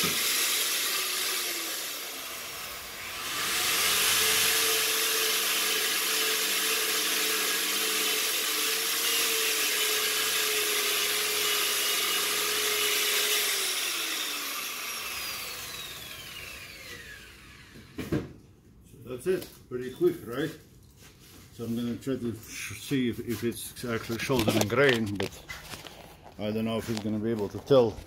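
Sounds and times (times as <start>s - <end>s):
power tool motor winding down: 0.0s - 18.0s.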